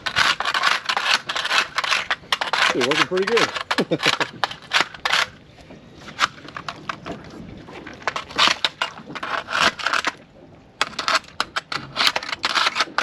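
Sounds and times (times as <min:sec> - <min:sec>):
barnacles being scraped and crushed: 0:00.0 - 0:05.4, 0:07.9 - 0:10.2, 0:10.8 - 0:13.0.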